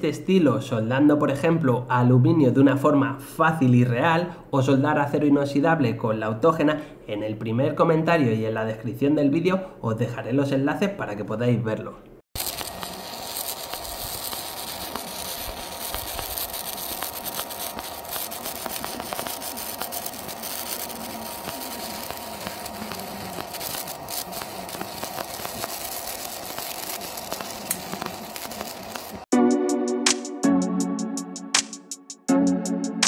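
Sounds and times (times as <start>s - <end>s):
welding arc crackling and popping: 12.4s - 29.3s.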